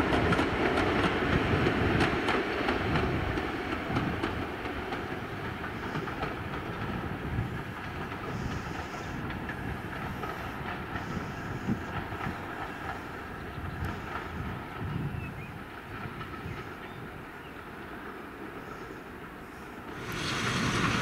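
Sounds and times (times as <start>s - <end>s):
train rumbling past: 0.0s - 21.0s
wheels clicking over rails: 19.9s - 21.0s.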